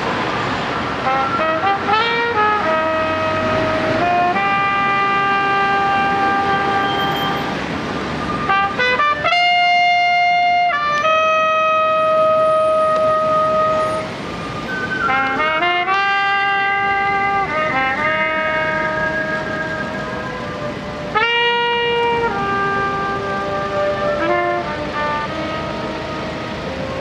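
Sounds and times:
solo trumpet melody: 1.0s - 7.6s, 8.2s - 27.0s.

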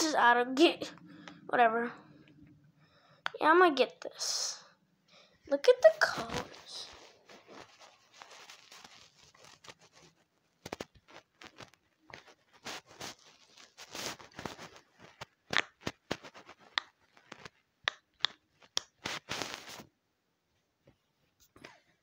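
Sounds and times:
pop-it bubbles clicking and popping: 15.5s - 19.2s.

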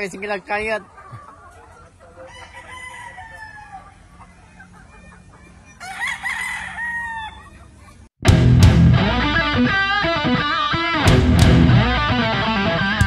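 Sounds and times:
roosters crowing: 1.0s - 8.0s.

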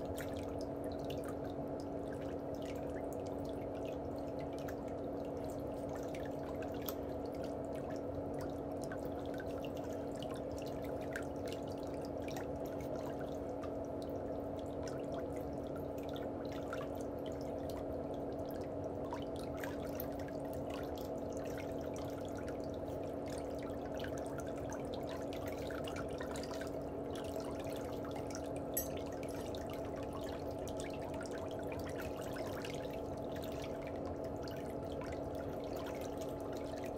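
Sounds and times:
low steady hum: 0.0s - 36.9s
water trickling and dripping: 0.0s - 36.9s.

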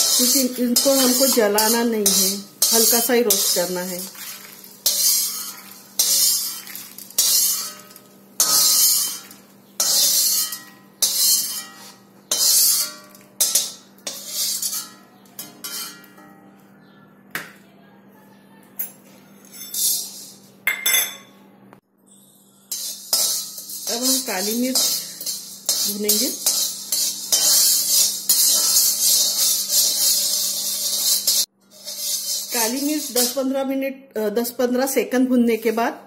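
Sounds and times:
peppercorns rattling into pan: 0.0s - 15.0s, 22.7s - 33.6s
metal spatula scraping a pan: 0.0s - 16.3s, 19.4s - 20.5s, 22.7s - 33.7s.

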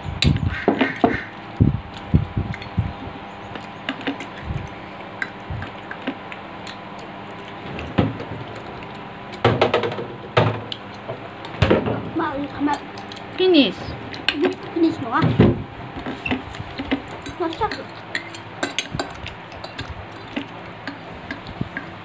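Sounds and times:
faint steady hum: 0.0s - 22.0s
forks clicking on paper plate: 16.3s - 21.9s.

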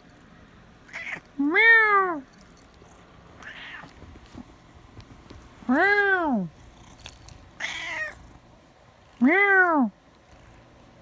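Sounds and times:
cat meowing: 0.9s - 2.2s, 3.4s - 3.9s, 7.6s - 8.2s.

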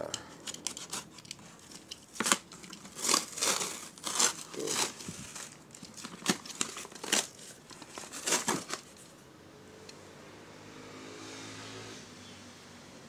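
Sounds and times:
cardboard box tearing: 2.2s - 9.0s.

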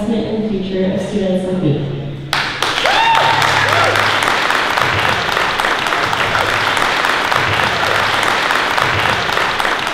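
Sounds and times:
audience applauding: 2.3s - 9.9s.

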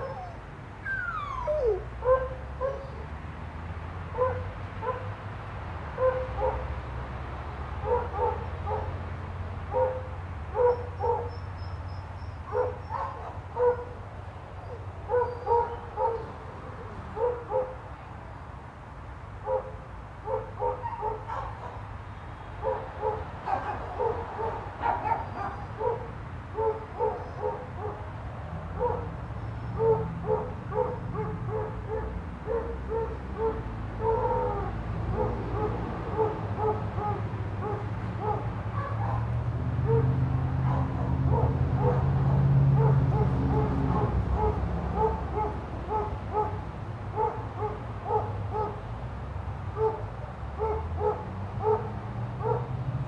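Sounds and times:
dog yippy barking: 0.0s - 2.9s, 4.2s - 5.1s, 6.0s - 6.6s, 9.7s - 11.4s, 12.5s - 13.9s, 15.1s - 16.3s, 20.3s - 21.8s, 22.6s - 28.0s, 28.8s - 29.1s, 29.8s - 39.3s, 47.2s - 48.8s, 50.6s - 52.7s.

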